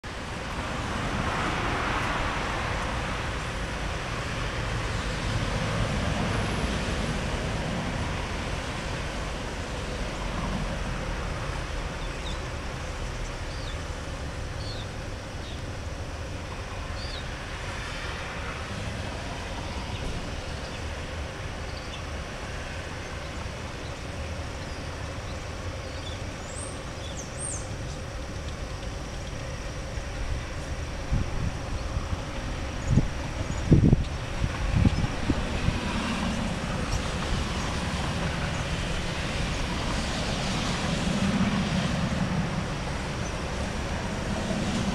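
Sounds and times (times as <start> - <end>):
distant road traffic: 0.0 - 44.9.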